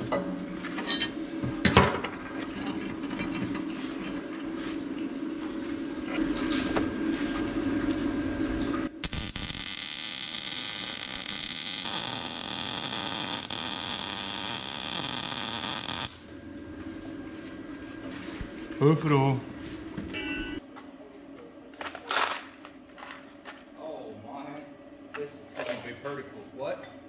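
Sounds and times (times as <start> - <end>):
low steady hum: 0.0 - 27.0
welding arc sizzling: 8.9 - 16.2.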